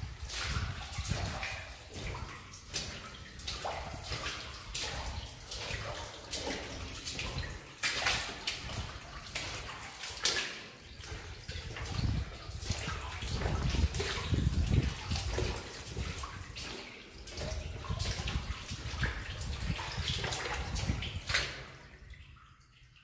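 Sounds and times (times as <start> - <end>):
footsteps splashing through water: 0.0 - 23.0.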